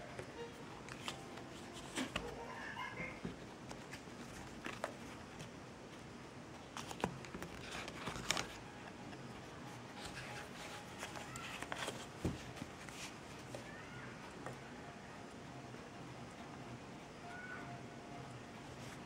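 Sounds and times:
paper rustling: 0.7 - 2.6, 3.3 - 5.5, 6.7 - 13.8.

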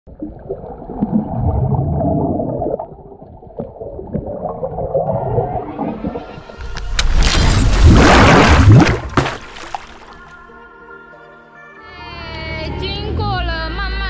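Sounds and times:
underwater water movement and bubbling: 0.1 - 10.2.

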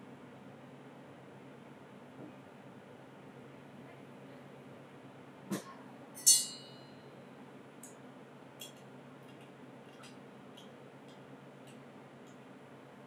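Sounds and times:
bar spoon clinking on glass: 6.2 - 6.8
ringing glass clink: 6.2 - 6.9.

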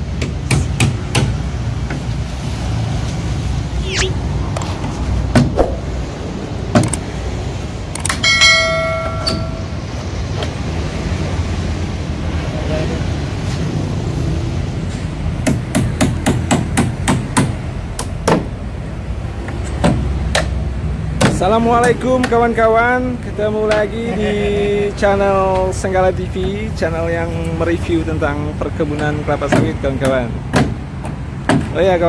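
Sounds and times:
ringing metal clang: 8.2 - 9.8
hammer knocking on wooden crate: 29.0 - 30.8, 31.5 - 31.8.

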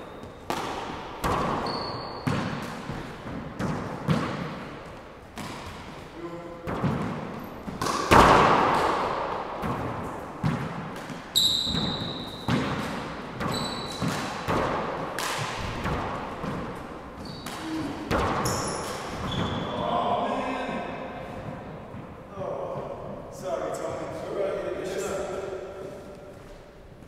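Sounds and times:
sneakers squeaking on floor: 0.0 - 6.1, 6.7 - 8.9, 9.6 - 14.8, 15.6 - 20.1
rubber ball smacking off walls: 6.6 - 16.8.

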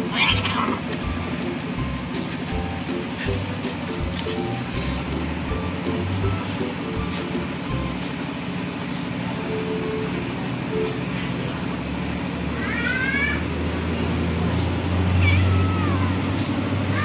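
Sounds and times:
cat meowing: 0.0 - 0.8, 15.2 - 16.1
low steady rumble: 0.0 - 10.5.

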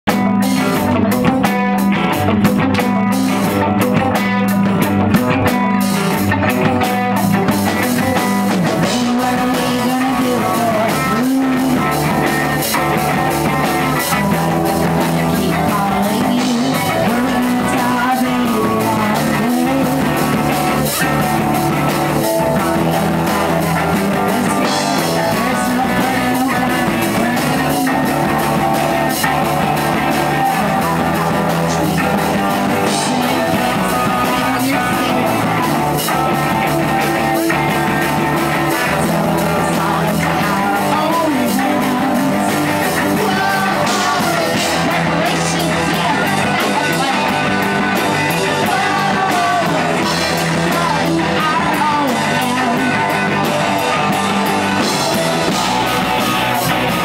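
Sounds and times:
bass guitar: 0.0 - 57.0
drum kit: 0.0 - 57.0
electric guitars: 0.0 - 57.0
woman singing: 6.3 - 21.2, 23.8 - 29.3, 30.1 - 37.7, 38.5 - 53.4.

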